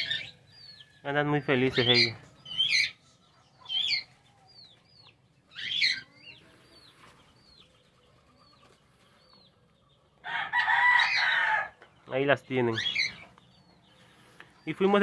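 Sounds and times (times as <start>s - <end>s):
small birds chirping: 0.0s - 15.0s
rooster crowing: 10.2s - 11.8s.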